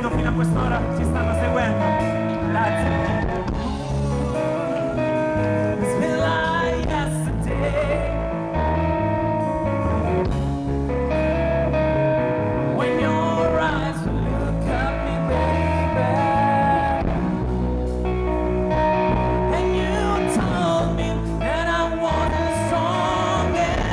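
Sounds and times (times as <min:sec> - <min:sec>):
man singing: 0:00.0 - 0:08.8, 0:12.6 - 0:17.5, 0:19.2 - 0:23.9
bass guitar: 0:00.0 - 0:23.9
electric guitar: 0:00.0 - 0:23.9.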